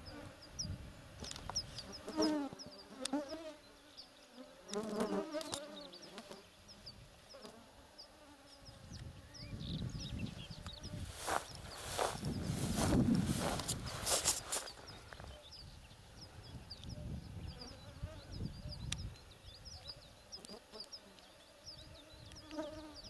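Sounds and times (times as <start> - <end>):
insect buzzing: 0.0 - 23.0
footsteps through dry grass: 11.0 - 15.4.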